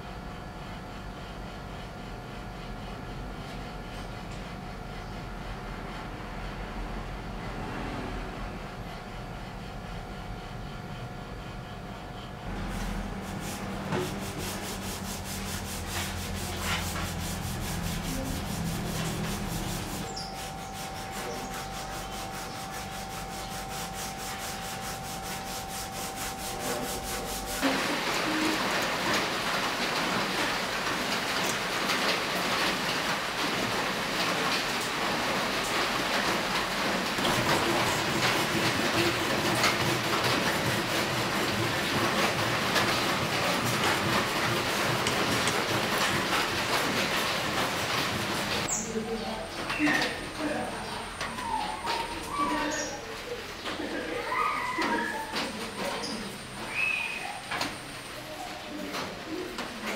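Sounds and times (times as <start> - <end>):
sandpaper rubbing on wood: 12.8 - 27.7, 36.8 - 48.8.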